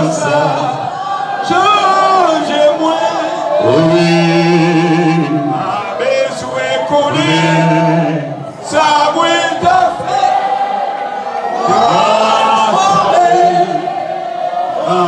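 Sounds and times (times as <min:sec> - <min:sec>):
man singing long notes: 0:01.5 - 0:10.5, 0:11.6 - 0:14.0.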